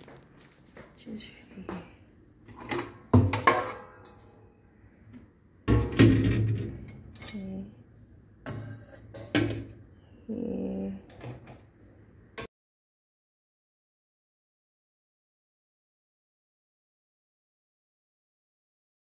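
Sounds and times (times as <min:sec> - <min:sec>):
metal pan and utensils clattering: 0:02.5 - 0:04.3, 0:08.5 - 0:09.8.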